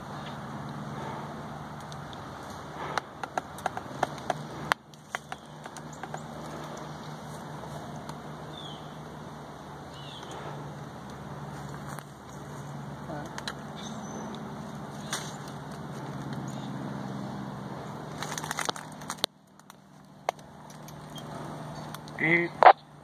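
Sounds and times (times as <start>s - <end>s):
low mechanical hum: 0.0s - 23.0s
faint crackles and clicks: 1.7s - 8.2s, 18.1s - 22.8s.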